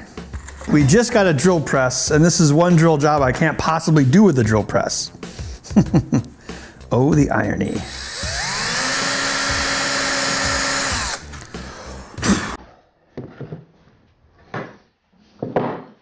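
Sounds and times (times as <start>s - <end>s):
cordless drill boring into wood: 7.8s - 11.5s, 12.2s - 12.6s.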